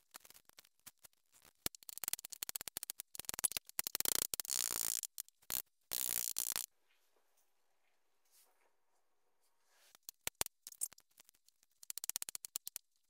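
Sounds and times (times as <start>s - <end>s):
onion being peeled: 0.0s - 6.7s.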